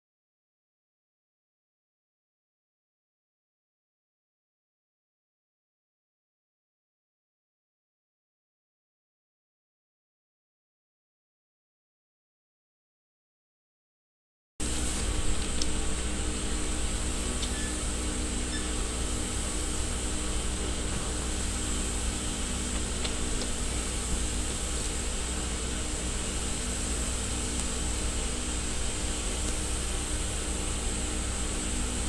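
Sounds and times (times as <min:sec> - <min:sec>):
machinery humming: 0:14.6 - 0:32.0.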